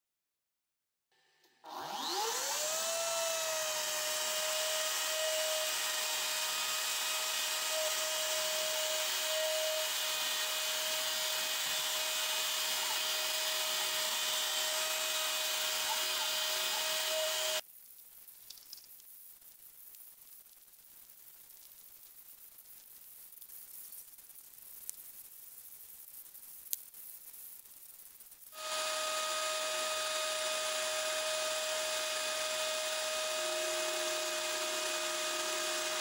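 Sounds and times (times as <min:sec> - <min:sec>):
router spindle whine: 0:01.2 - 0:17.6, 0:28.6 - 0:36.0
end mill cutting wood hiss: 0:01.7 - 0:17.6, 0:28.6 - 0:36.0.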